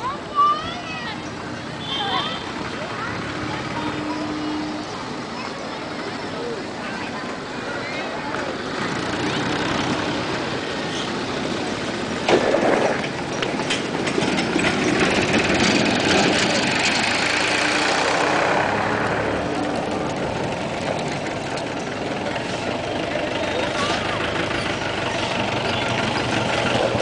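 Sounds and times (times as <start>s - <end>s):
street traffic noise: 0.0s - 27.0s
tractor engine running: 8.3s - 27.0s.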